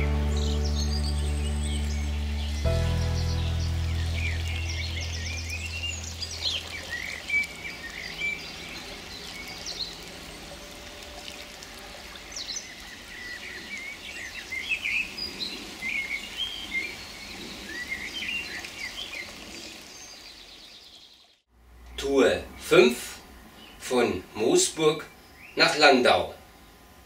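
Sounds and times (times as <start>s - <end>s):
soft background music: 0.0s - 7.1s
rain hissing: 0.0s - 21.0s
flowing river water: 0.0s - 21.3s
songbirds chirping: 0.0s - 27.0s.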